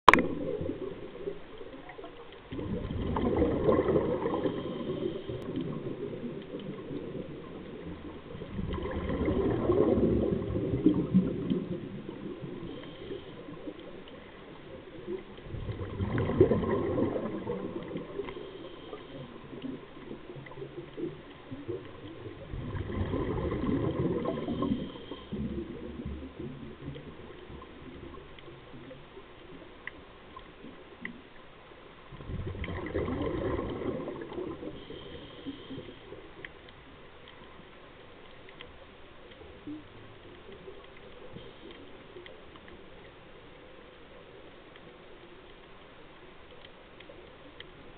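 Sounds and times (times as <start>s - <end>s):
underwater noise: 0.0s - 47.9s
diver's bubbles gurgling underwater: 0.1s - 31.3s, 32.0s - 36.5s.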